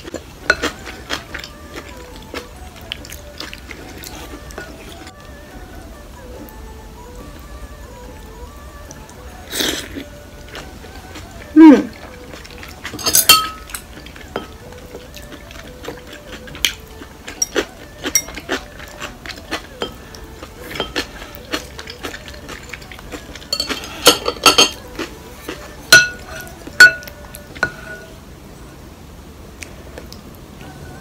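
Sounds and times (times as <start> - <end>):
utensils clinking on ceramic bowl: 0.5 - 1.6, 12.6 - 14.6, 17.3 - 20.1, 20.7 - 25.1, 25.9 - 28.1.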